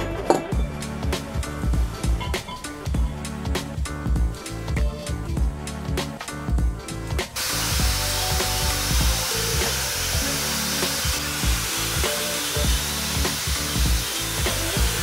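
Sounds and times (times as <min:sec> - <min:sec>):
background music: 0:00.0 - 0:15.0
wire brush scouring metal: 0:07.4 - 0:15.0.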